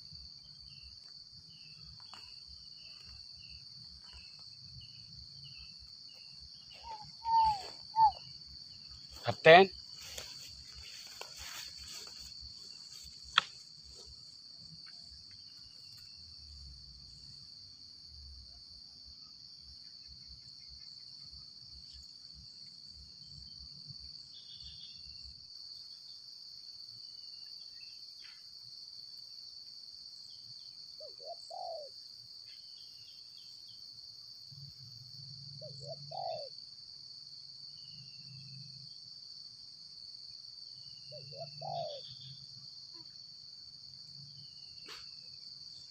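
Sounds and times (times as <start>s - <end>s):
faint high bird chirps: 2.0s - 9.7s, 31.0s - 33.2s, 41.0s - 42.4s
high-pitched insect drone: 2.1s - 13.1s
dove cooing: 6.8s - 8.2s, 31.0s - 31.9s, 35.7s - 36.5s, 41.1s - 42.0s.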